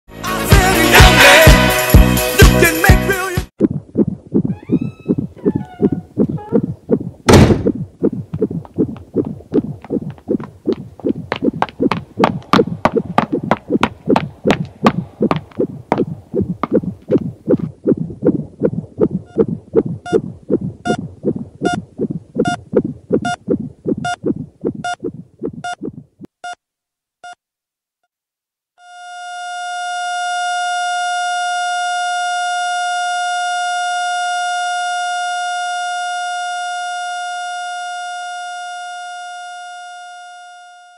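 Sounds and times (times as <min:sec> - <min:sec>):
heartbeat thumping: 0:03.6 - 0:26.4
flatline tone: 0:03.6 - 0:26.6, 0:28.8 - 0:40.9
heart monitor beeps: 0:03.6 - 0:26.6
heavy thud: 0:07.3 - 0:07.8.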